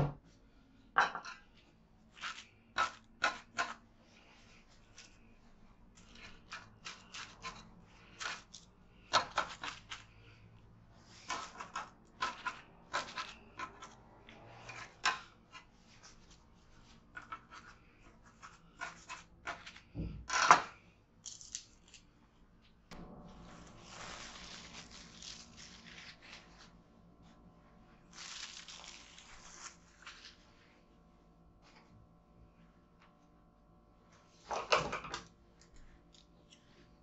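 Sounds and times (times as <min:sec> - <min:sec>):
cling film crinkling: 0:23.6 - 0:26.8, 0:28.1 - 0:30.5.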